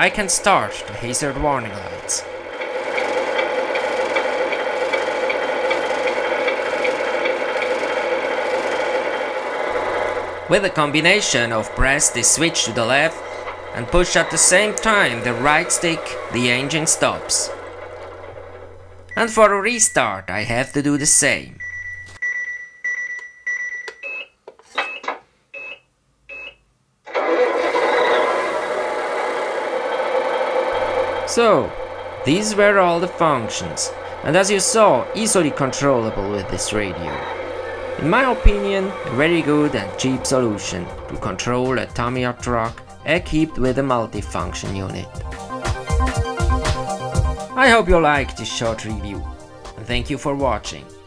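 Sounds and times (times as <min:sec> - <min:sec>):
simulated diesel engine idling: 0:00.0 - 0:21.2, 0:27.2 - 0:50.0
short electronic beeps: 0:21.0 - 0:26.6.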